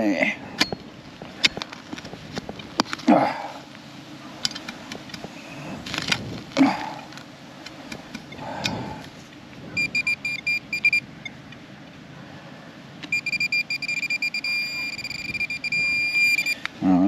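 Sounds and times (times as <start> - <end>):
metal detector pinpointer beeping: 9.7 - 11.4, 13.0 - 16.7.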